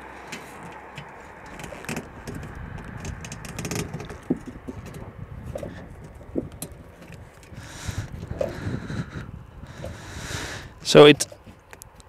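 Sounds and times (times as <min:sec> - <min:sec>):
low rumble: 0:00.0 - 0:10.9
clicks and taps on wheel rim: 0:00.3 - 0:08.6.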